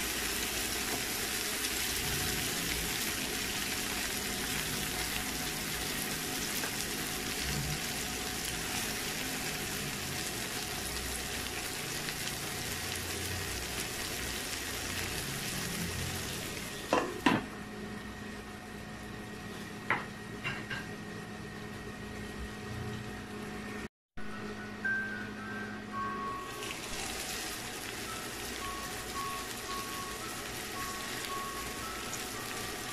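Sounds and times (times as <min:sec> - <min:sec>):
food sizzling in frying pan: 0:00.0 - 0:17.5, 0:26.4 - 0:32.9.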